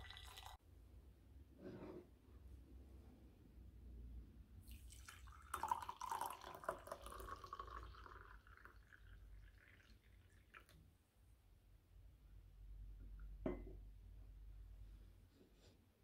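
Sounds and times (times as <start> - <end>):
tea pouring into a cup: 0.0 - 0.6, 4.6 - 10.8.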